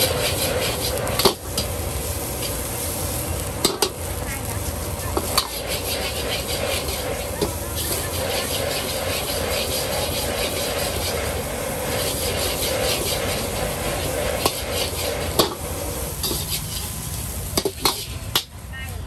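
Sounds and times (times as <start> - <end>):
metal spatula scraping a pan: 0.0 - 1.7, 5.1 - 17.0, 17.6 - 18.2
food sizzling in a pan: 0.0 - 19.0.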